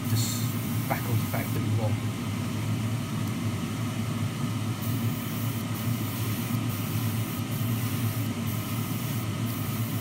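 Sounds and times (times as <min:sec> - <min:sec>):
machine hum: 0:00.0 - 0:10.0
airbrush hissing: 0:04.8 - 0:10.0.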